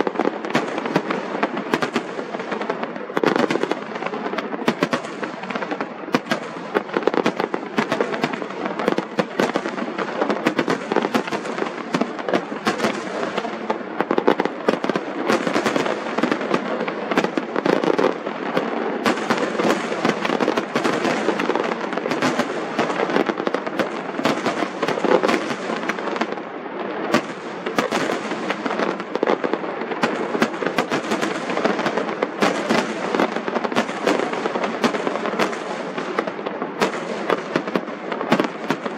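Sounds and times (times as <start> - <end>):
fireworks bangs and crackling: 0.0 - 38.9.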